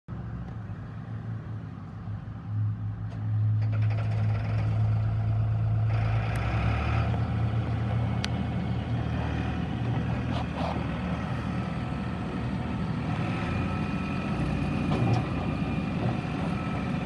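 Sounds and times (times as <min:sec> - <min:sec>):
diesel engine running: 0:00.1 - 0:17.0.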